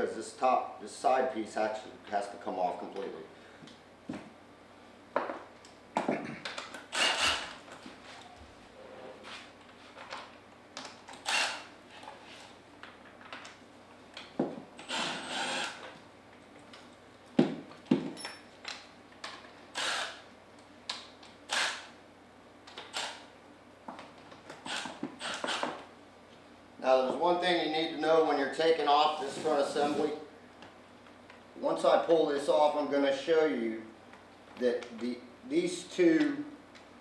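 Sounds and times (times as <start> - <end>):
cordless impact driver bursts: 6.9 - 7.6, 11.2 - 11.7, 14.8 - 15.8, 19.7 - 20.2, 21.5 - 21.9, 24.7 - 25.7.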